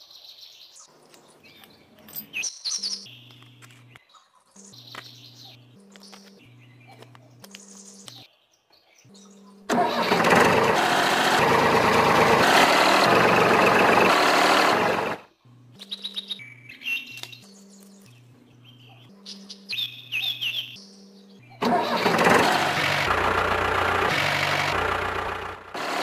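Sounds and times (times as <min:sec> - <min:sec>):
bird chirps: 0:00.2 - 0:09.7, 0:15.8 - 0:21.6
quiet repeating low tune: 0:04.6 - 0:08.2, 0:15.3 - 0:16.6
loud tractor engine noise: 0:09.7 - 0:15.3, 0:21.6 - 0:26.0.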